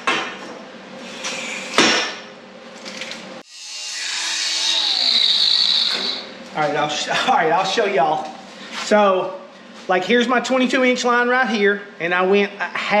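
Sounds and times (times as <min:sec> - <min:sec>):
angle grinder cutting steel: 0:03.5 - 0:06.2.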